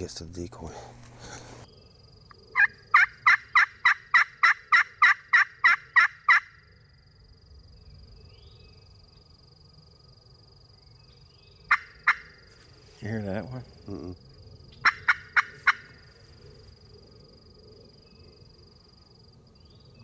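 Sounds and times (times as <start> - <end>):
turkey call hen yelps: 2.6 - 6.5, 11.7 - 12.3, 14.8 - 16.0.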